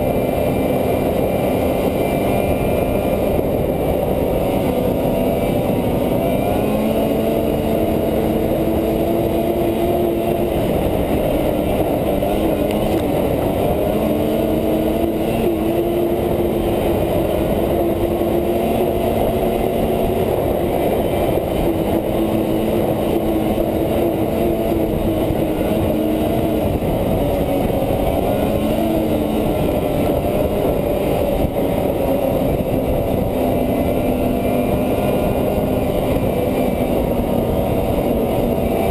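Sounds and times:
snowmobile engine running: 0.0 - 38.9.

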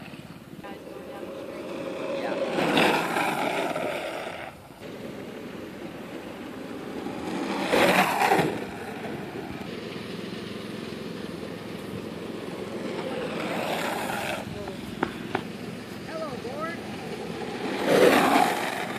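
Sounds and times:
longboard wheels rolling on asphalt: 0.0 - 18.9.

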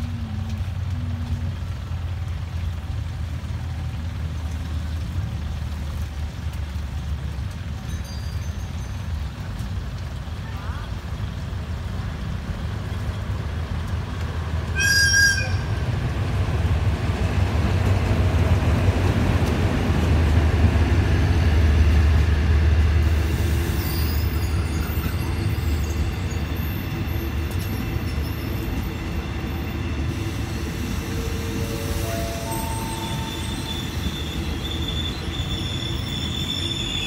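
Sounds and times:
train rumbling on rails: 0.0 - 37.0
high-pitched squeal: 23.4 - 37.0.

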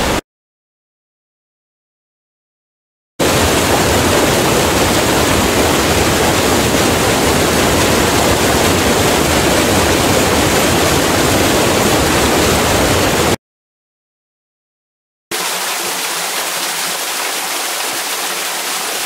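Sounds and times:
falling water rushing: 3.2 - 13.4, 15.3 - 19.0.

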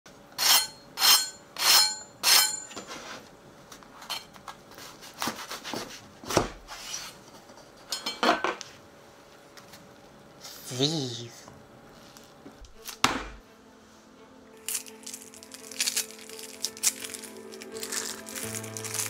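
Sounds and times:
bread crackling pulled apart: 14.6 - 19.0.

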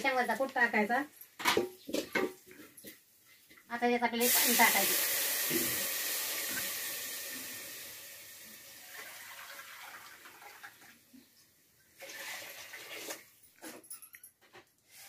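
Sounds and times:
water hissing in hot oil: 4.1 - 10.7.

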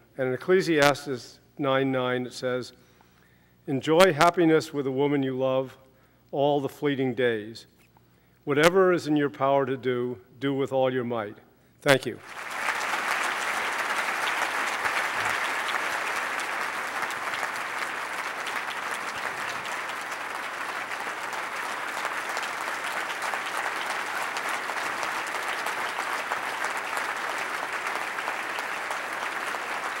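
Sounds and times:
large audience applauding: 12.2 - 30.0.

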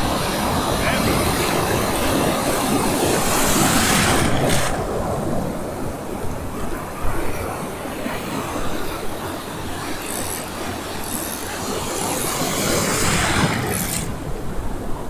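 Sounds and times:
wave breaking: 0.0 - 5.6, 11.7 - 14.6
ocean surf rushing: 0.0 - 15.0.

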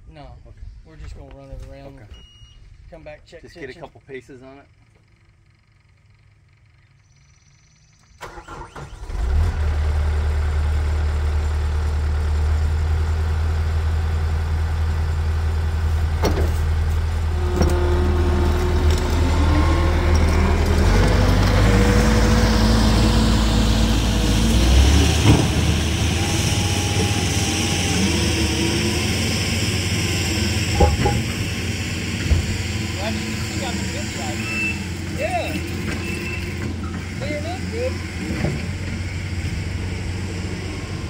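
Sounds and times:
diesel engine running: 3.6 - 41.0
rising machine whines: 17.1 - 38.3, 39.0 - 41.0.

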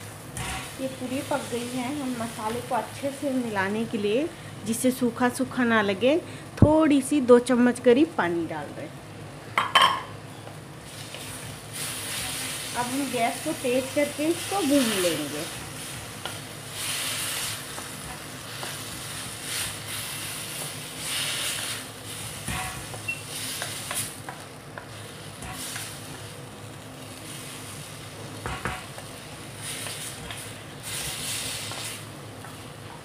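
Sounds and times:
food sizzling in a pan: 0.0 - 6.0, 6.9 - 33.0
spatula knocking on pan: 28.4 - 28.8.

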